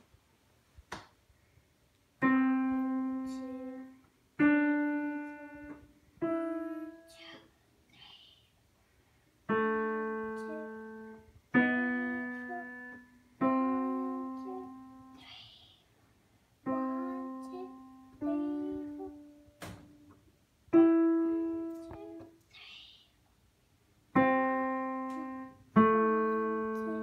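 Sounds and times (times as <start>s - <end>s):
digital piano notes: 2.2s - 7.4s, 9.5s - 15.2s, 16.6s - 22.3s, 24.2s - 27.0s.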